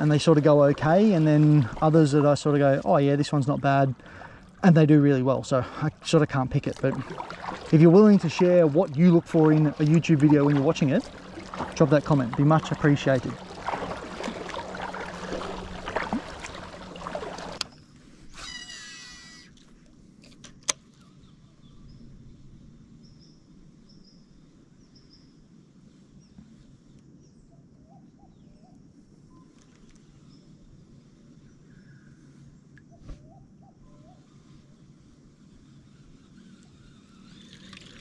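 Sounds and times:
paddle splashing and dripping: 0.0s - 17.8s, 36.4s - 38.0s
faint bird chirps: 23.0s - 30.6s, 31.4s - 34.6s.

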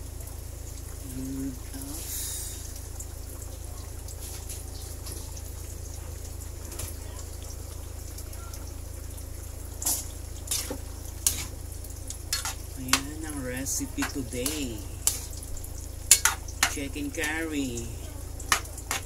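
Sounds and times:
curry bubbling in a pan: 0.0s - 19.0s
metal ladle scraping a pan: 9.9s - 11.6s, 12.3s - 15.4s, 16.1s - 17.4s, 18.5s - 19.0s.

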